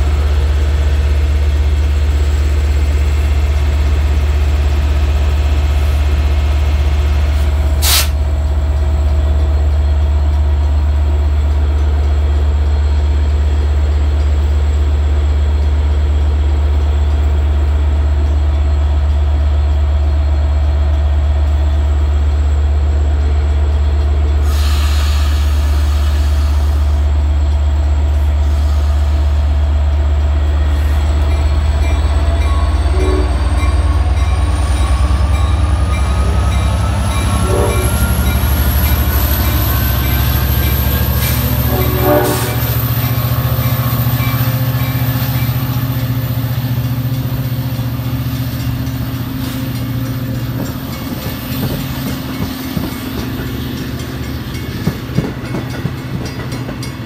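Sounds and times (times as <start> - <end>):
locomotive engine humming: 0.0 - 57.0
brief hiss: 7.8 - 8.2.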